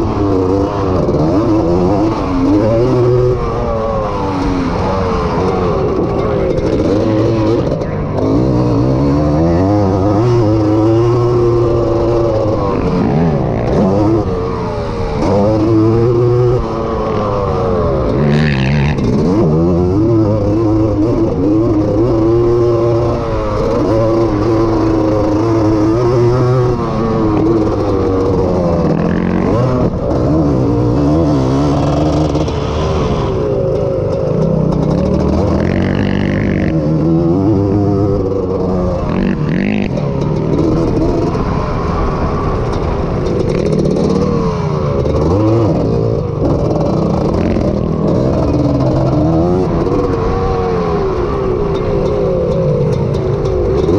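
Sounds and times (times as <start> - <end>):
two-stroke engine revving: 0.0 - 53.9.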